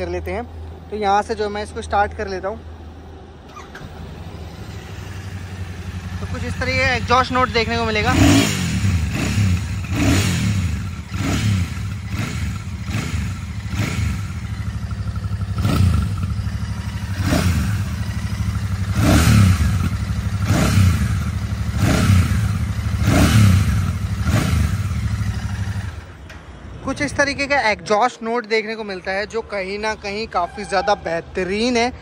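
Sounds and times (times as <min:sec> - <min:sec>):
motorcycle engine idling: 0:02.8 - 0:27.4.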